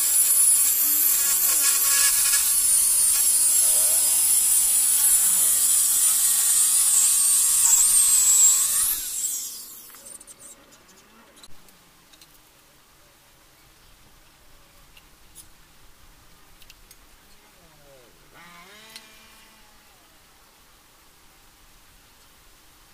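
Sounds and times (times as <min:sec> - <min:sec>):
saw winding down: 0:00.0 - 0:10.5, 0:18.3 - 0:20.0
circular saw cutting wood: 0:00.0 - 0:10.6, 0:18.3 - 0:20.0.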